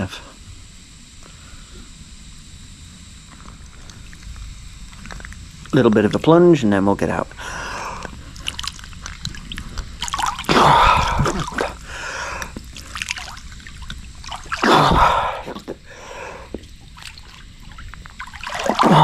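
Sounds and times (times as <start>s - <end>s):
man breathing heavily: 7.4s - 8.4s, 10.5s - 13.0s, 14.6s - 16.6s
water splashing and sloshing: 7.9s - 19.0s.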